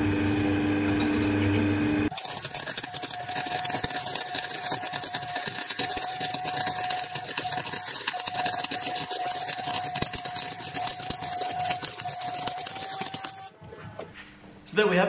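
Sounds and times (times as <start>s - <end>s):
thin whine: 2.0s - 13.5s
welder arc crackling: 2.1s - 13.5s.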